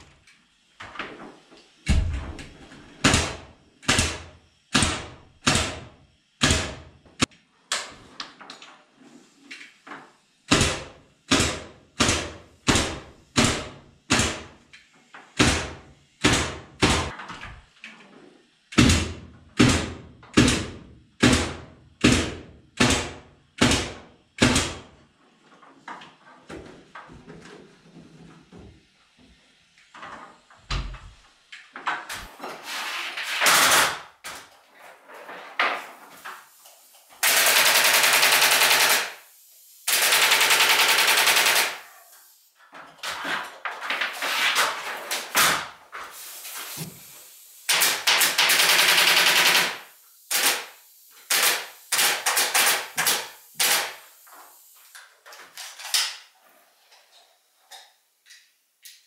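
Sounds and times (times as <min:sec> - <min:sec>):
pneumatic stapler firing rapidly: 0:03.0 - 0:07.3, 0:10.5 - 0:14.6, 0:15.4 - 0:17.2, 0:18.7 - 0:25.0, 0:33.2 - 0:34.4, 0:37.2 - 0:41.9, 0:43.9 - 0:47.0, 0:47.6 - 0:54.2.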